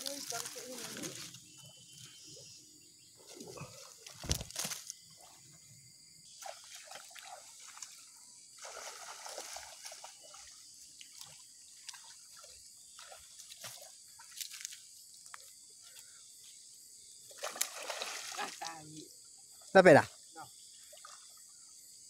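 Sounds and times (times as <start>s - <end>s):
wading through muddy water: 6.3s - 16.5s, 17.3s - 18.9s.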